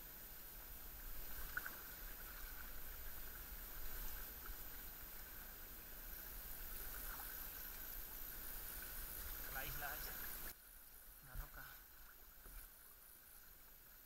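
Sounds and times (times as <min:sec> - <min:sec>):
water lapping at hull: 0:00.0 - 0:10.6
kayak paddle dipping in water: 0:00.2 - 0:10.6
small water splashes: 0:01.0 - 0:10.6.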